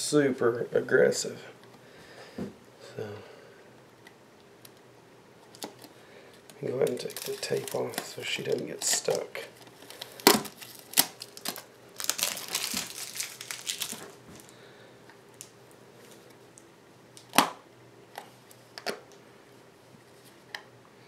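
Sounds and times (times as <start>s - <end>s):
tape peeling off plastic: 9.8s - 14.5s.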